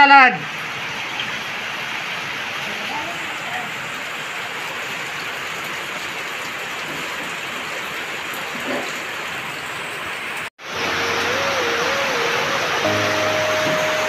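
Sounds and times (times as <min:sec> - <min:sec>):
wavering musical tone: 0:10.7 - 0:14.0.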